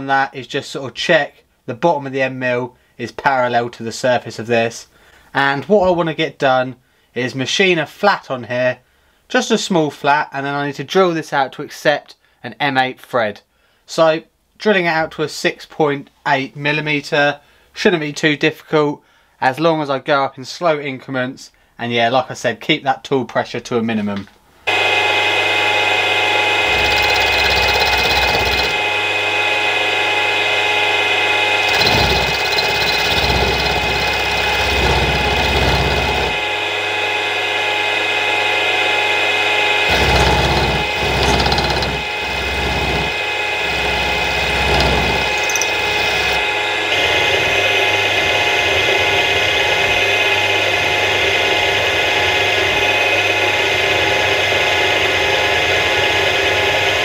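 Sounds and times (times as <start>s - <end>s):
milling machine whine: 24.7s - 50.7s.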